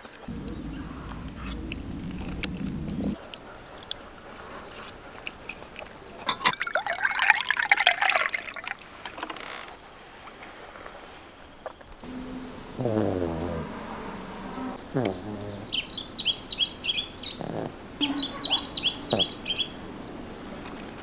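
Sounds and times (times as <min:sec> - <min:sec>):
low rumble: 0:00.3 - 0:03.2
water gurgling into a mug: 0:06.3 - 0:08.9.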